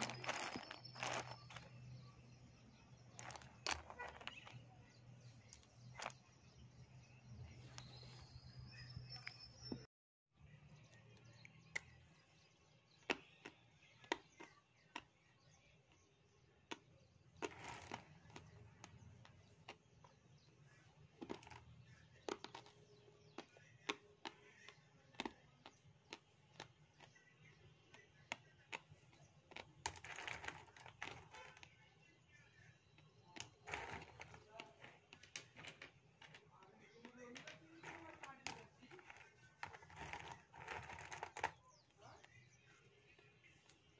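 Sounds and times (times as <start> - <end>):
person chewing dry clay: 0.0 - 1.5.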